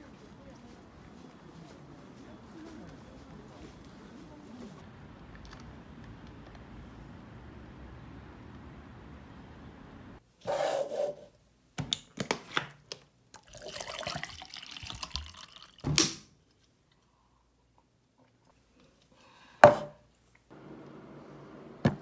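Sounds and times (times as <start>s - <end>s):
water pouring into glass: 13.4s - 15.8s.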